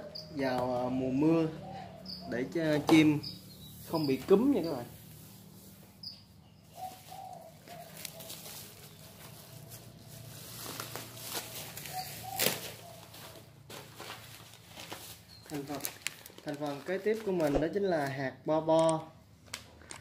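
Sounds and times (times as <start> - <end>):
doves cooing: 0.0 - 5.0, 6.4 - 17.6
wings fluttering: 6.8 - 17.8.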